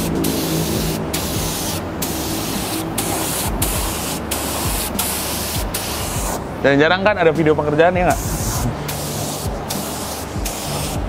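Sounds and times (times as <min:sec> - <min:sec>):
spray gun hissing: 0:00.0 - 0:06.6, 0:08.0 - 0:11.0.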